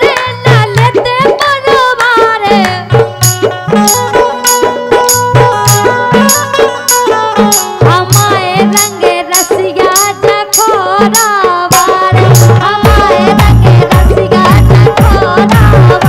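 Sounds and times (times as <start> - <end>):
woman singing: 0.0 - 3.1, 7.8 - 16.0
harmonium chords: 0.0 - 16.0
sharp percussion beat: 0.0 - 16.0
heavy low drum beats: 11.0 - 16.0.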